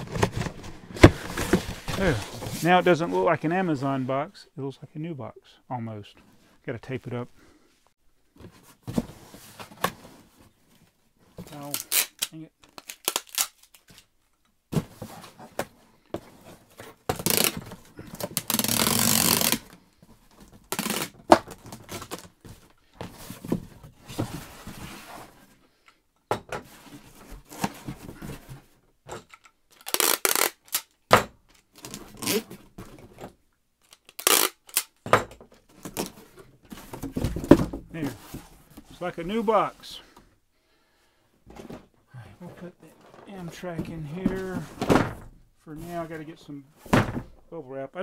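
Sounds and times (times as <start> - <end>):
cardboard box being handled: 0.0 - 2.7.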